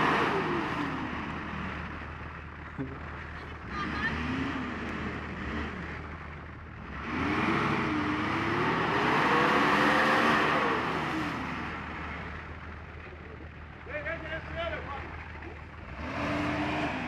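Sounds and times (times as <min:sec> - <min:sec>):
engine revving hard: 0:03.7 - 0:05.9, 0:06.8 - 0:11.9, 0:15.8 - 0:17.0.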